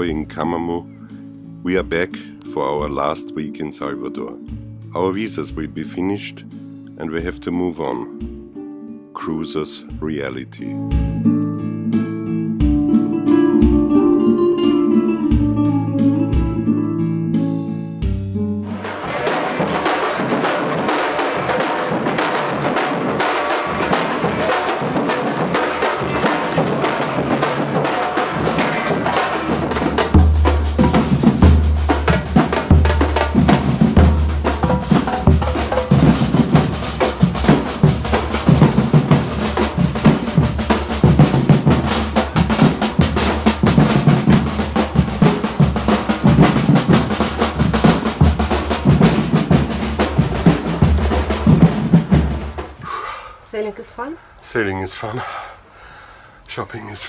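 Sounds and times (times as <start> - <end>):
large bass drums beaten: 18.7 - 53.0
sharp high drum hits: 18.7 - 53.0
street drum band: 18.7 - 53.0.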